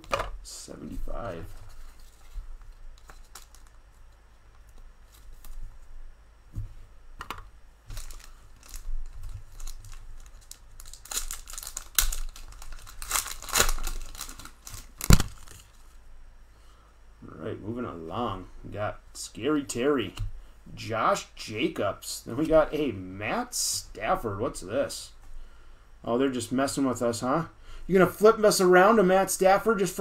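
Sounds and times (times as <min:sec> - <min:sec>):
foil wrapper crinkling and tearing: 0:03.0 - 0:03.8, 0:07.9 - 0:15.8.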